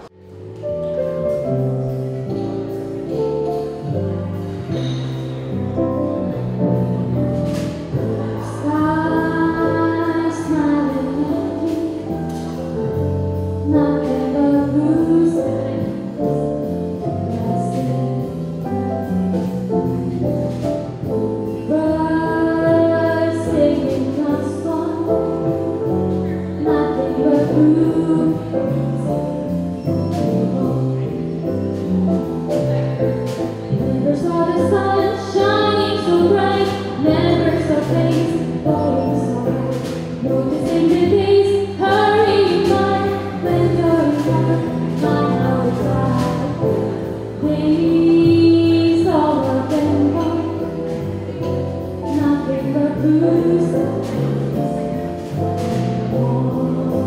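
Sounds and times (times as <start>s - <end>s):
guitar: 0.0s - 57.0s
keyboard chords: 0.0s - 57.0s
woman singing with vibrato: 7.9s - 12.4s, 13.6s - 16.2s, 21.7s - 29.3s, 33.7s - 55.2s, 55.9s - 57.0s.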